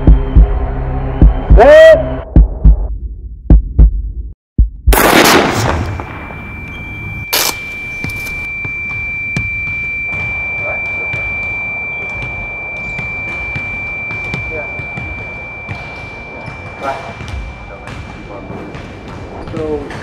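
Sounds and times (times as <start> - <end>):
high-pitched ringing tone: 6.1 - 18.4.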